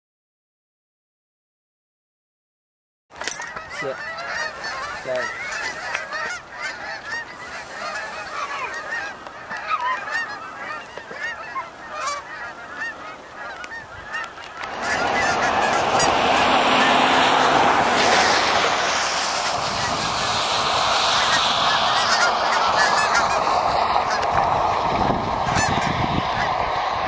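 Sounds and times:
geese honking: 3.3s - 27.0s
loud rushing noise: 14.6s - 27.0s.

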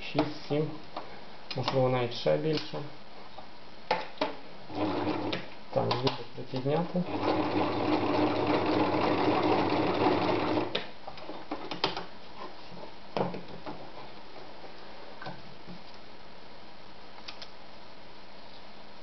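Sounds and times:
sewing machine stitching: 4.7s - 5.4s, 7.0s - 10.8s.

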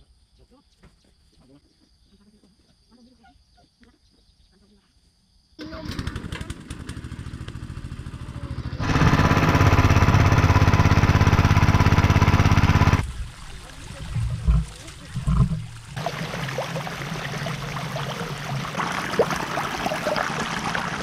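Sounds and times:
small petrol engine running: 5.6s - 13.0s
water gushing from pipe: 8.8s - 21.0s.

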